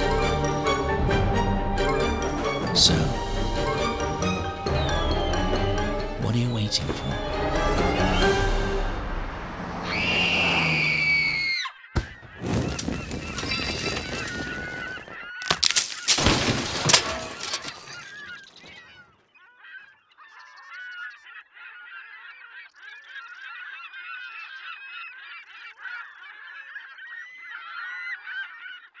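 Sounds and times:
flock of birds calling: 0:09.8 - 0:29.0.

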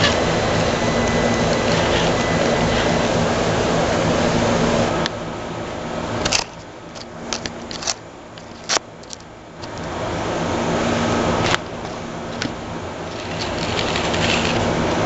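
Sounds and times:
electric motor whining: 0:00.0 - 0:05.1, 0:10.9 - 0:15.0.

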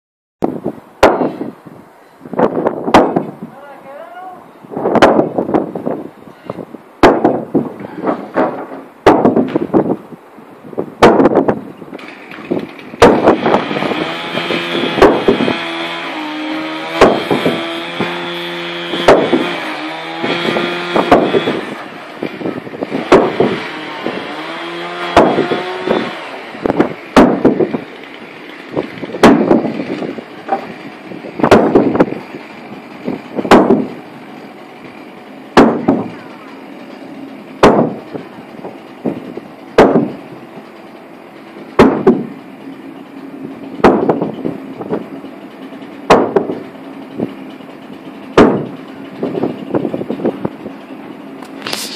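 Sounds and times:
mallet striking wooden planks: 0:01.0 - 0:01.4, 0:02.4 - 0:03.3, 0:04.9 - 0:05.3, 0:07.0 - 0:09.7, 0:11.0 - 0:11.6, 0:13.0 - 0:13.4, 0:15.0 - 0:15.4, 0:17.0 - 0:18.2, 0:19.0 - 0:19.5, 0:20.3 - 0:21.6, 0:23.1 - 0:23.5, 0:25.1 - 0:26.1, 0:26.8 - 0:27.6, 0:29.2 - 0:29.7, 0:30.5 - 0:30.7, 0:31.4 - 0:32.1, 0:33.4 - 0:34.0, 0:35.6 - 0:36.1, 0:37.6 - 0:38.0, 0:39.8 - 0:40.2, 0:41.8 - 0:42.3, 0:43.8 - 0:44.3, 0:46.1 - 0:46.6, 0:48.4 - 0:48.8
pitched drone humming: 0:10.9 - 0:51.9.

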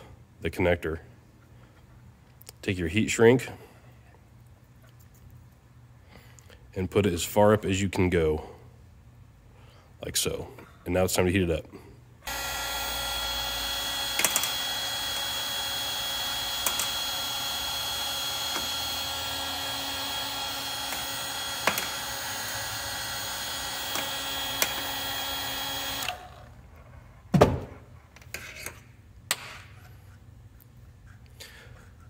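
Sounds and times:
heat gun fan whirring: 0:12.2 - 0:28.0.

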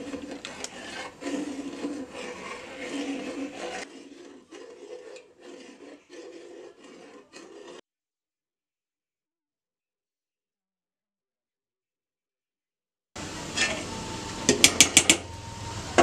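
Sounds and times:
metal ladle scraping a steel pot: 0:00.0 - 0:07.8, 0:13.5 - 0:15.3.

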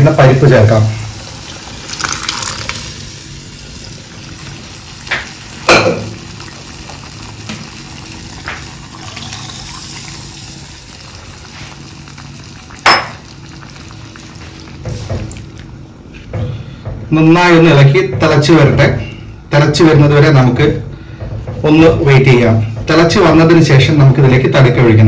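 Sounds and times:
liquid pouring into a pan: 0:01.1 - 0:15.8.

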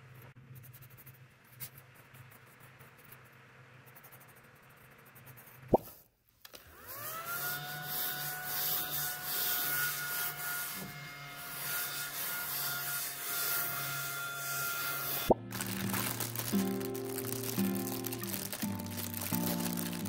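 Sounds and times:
mini vacuum motor whining: 0:06.5 - 0:12.8.

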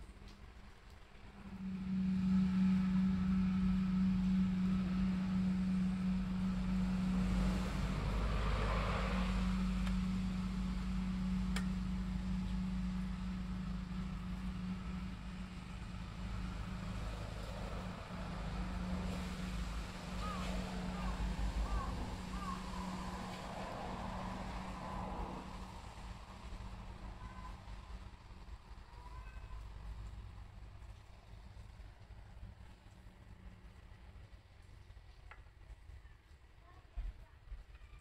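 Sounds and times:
low mechanical hum: 0:00.0 - 0:38.0
noisy whoosh: 0:01.2 - 0:28.4.

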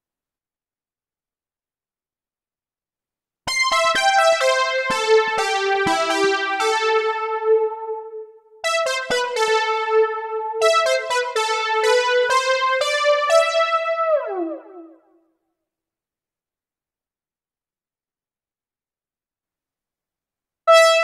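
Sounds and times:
synth brass melody: 0:03.5 - 0:15.0, 0:20.7 - 0:21.0.

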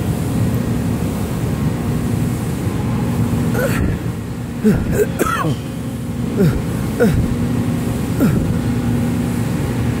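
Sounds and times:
low mechanical hum: 0:00.0 - 0:10.0
man's short vocal sounds: 0:04.6 - 0:05.6, 0:06.4 - 0:07.3, 0:08.2 - 0:08.6.

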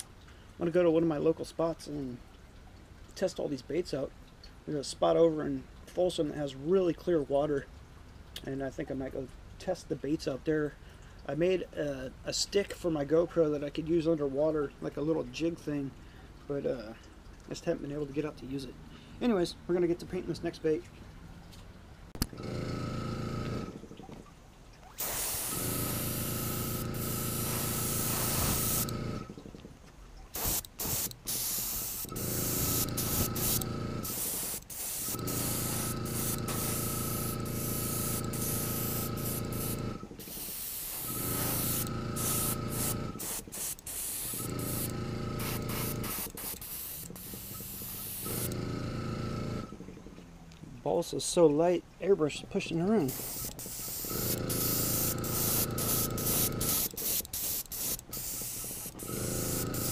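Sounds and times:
steady hum: 0:24.9 - 0:50.2, 0:52.5 - 0:59.9
airbrush spraying hiss: 0:25.0 - 0:29.2, 0:30.4 - 0:48.6, 0:53.0 - 0:59.9.

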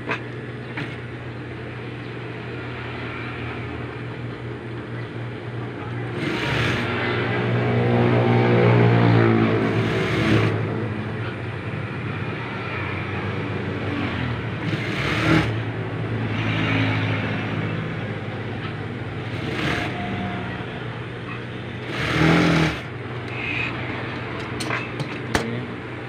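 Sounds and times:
sewing machine motor humming: 0:06.0 - 0:07.2, 0:09.6 - 0:10.6, 0:13.8 - 0:17.0, 0:19.1 - 0:24.3.

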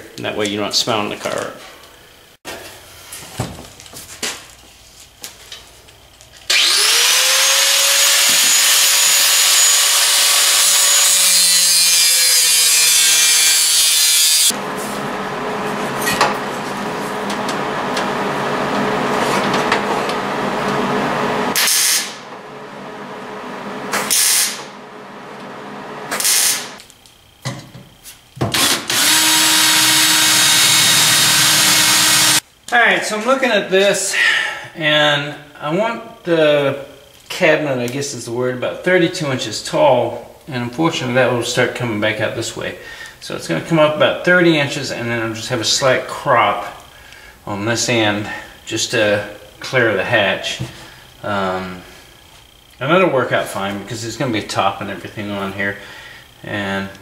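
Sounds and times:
angle grinder whining: 0:06.5 - 0:26.9, 0:28.4 - 0:32.4.

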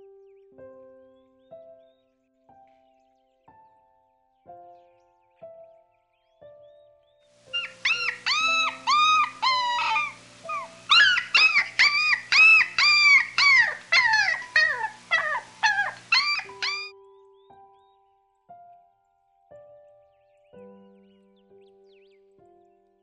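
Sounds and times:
soft piano music: 0:00.0 - 0:23.0
animal short high calls: 0:07.5 - 0:16.9.

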